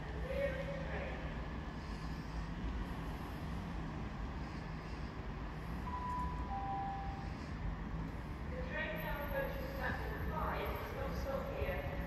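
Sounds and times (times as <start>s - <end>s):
distant train approaching: 0.0s - 11.5s
station platform rumble: 5.0s - 12.0s
two-tone chime: 5.9s - 7.2s.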